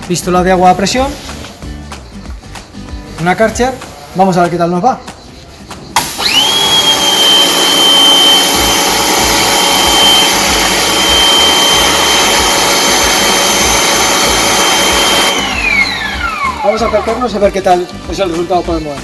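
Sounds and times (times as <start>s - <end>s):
water jet hissing: 6.0s - 16.0s
pressure washer pump whine: 6.0s - 17.4s.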